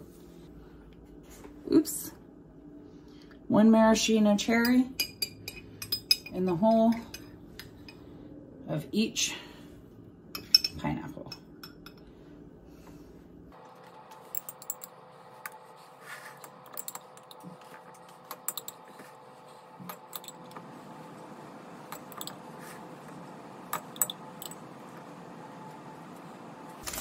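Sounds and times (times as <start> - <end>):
faint steady hum: 0.0 - 27.0
metal spoon clinking on glass: 10.4 - 12.0.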